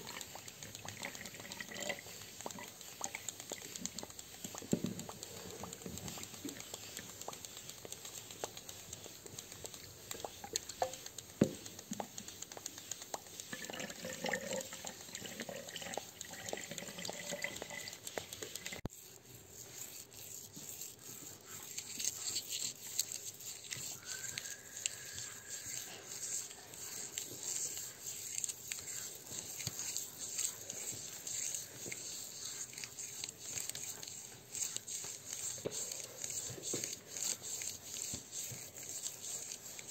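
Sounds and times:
steady hiss: 0:18.1 - 0:39.9.

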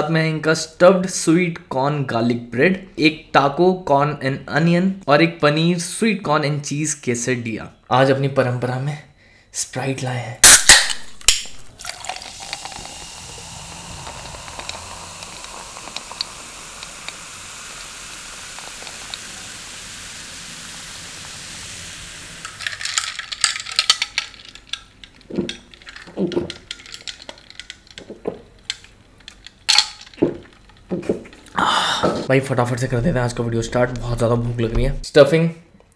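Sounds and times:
soda fizzing over ice: 0:11.4 - 0:24.6
drinking through a straw: 0:11.6 - 0:22.4.

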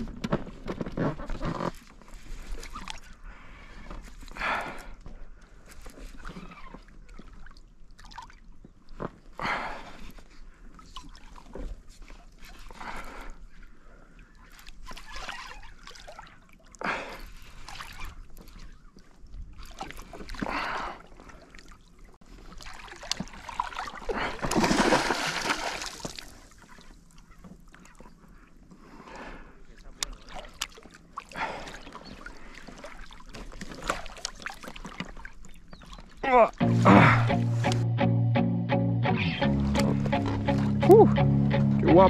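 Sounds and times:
fish splashing in water: 0:22.5 - 0:27.0.

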